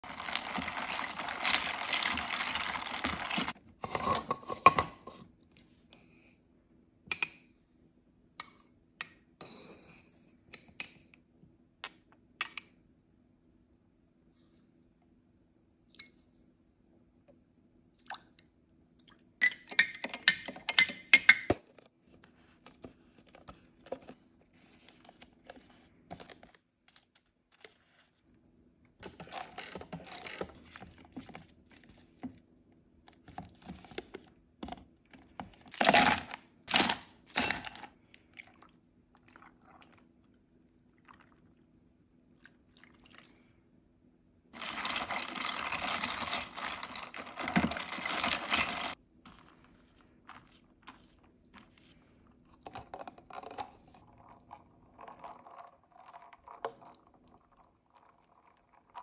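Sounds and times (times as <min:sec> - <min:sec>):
spoon stirring ice: 0:00.0 - 0:04.8, 0:44.6 - 0:49.5.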